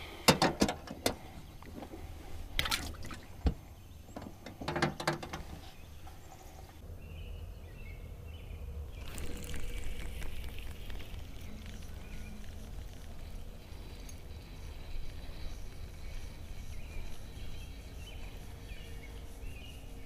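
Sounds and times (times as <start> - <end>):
water pouring and trickling: 2.5 - 3.4, 8.9 - 14.5.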